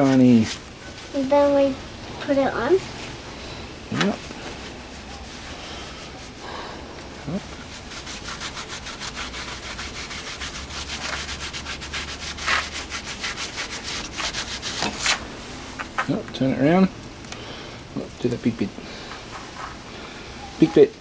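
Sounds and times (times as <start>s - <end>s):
cloth rag scratchy rubbing: 3.9s - 6.4s, 7.2s - 15.8s.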